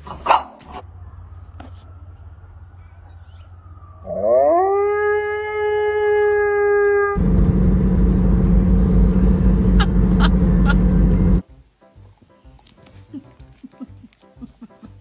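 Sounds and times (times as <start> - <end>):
dog howling: 4.0 - 7.2.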